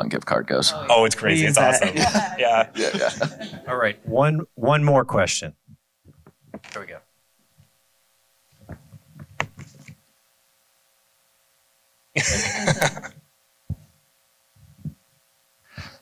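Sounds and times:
faint electrical hum: 0.0 - 16.0
muffled voices: 0.6 - 4.4.

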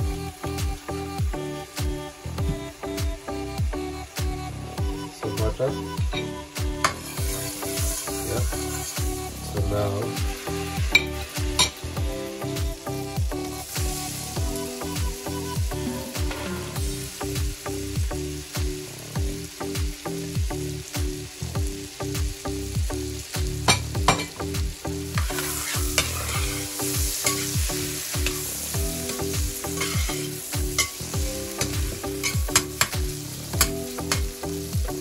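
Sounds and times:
onions sizzling in a pan: 0.0 - 35.0.

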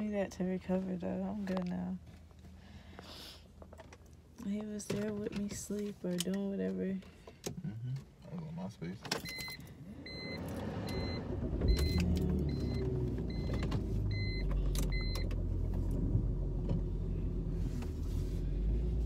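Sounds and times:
car engine and tyres rumble: 0.0 - 19.0
car warning chime beeping: 9.2 - 15.4.

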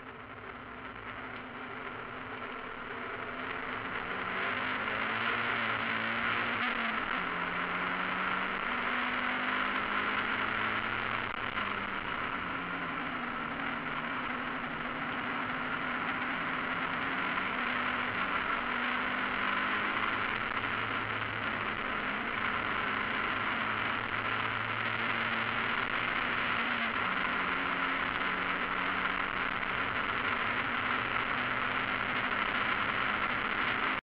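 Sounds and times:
road noise: 0.0 - 34.0
race car engine revving: 0.9 - 34.0.

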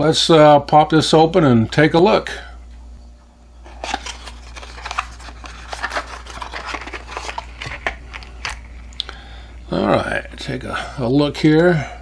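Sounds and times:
cardboard box rustling: 3.7 - 8.3.

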